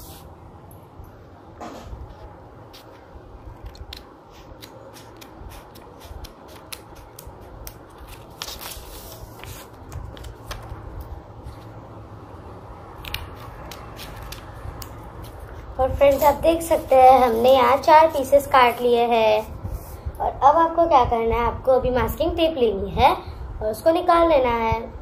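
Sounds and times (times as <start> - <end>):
scissors snipping paper: 3.6 - 8.9, 13.0 - 15.4.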